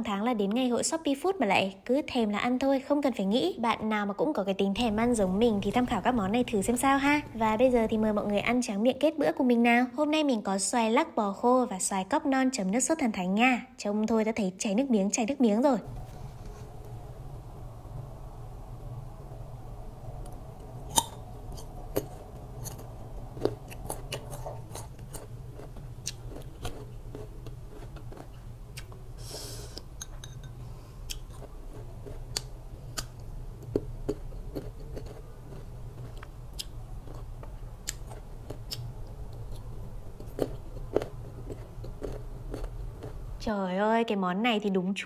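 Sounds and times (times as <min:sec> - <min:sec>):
low hum: 0:03.7 - 0:09.6, 0:15.8 - 0:43.5
crunching and chewing: 0:20.9 - 0:29.9, 0:31.0 - 0:43.4.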